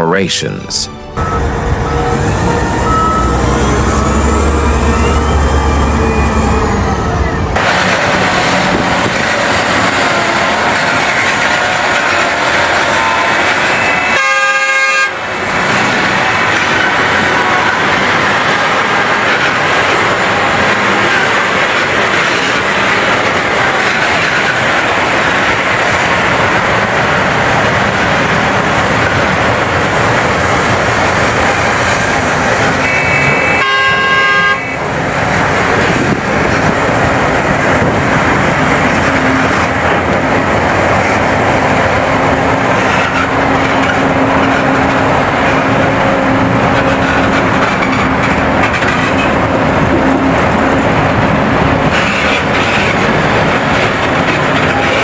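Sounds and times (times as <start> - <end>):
excavator diesel engine running: 0.4 - 14.2
vehicle horn: 12.9 - 15.2, 32.8 - 34.9.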